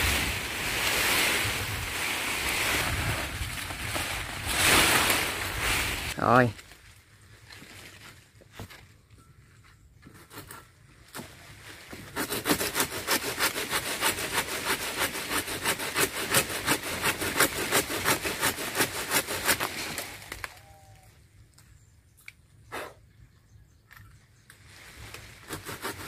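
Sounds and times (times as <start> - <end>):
hand saw cutting branch: 11.9 - 20.2, 25.4 - 26.0.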